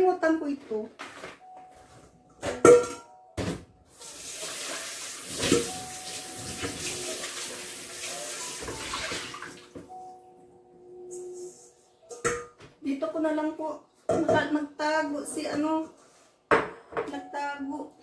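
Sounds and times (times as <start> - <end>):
cookware clanking in sink: 2.4 - 4.1, 4.7 - 7.7
tap running into sink: 4.4 - 9.9.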